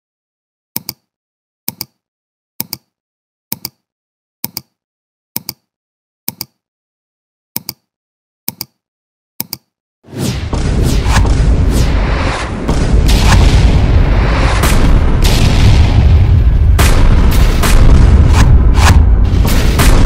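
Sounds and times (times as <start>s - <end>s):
fireworks explosions: 10.1s - 20.0s.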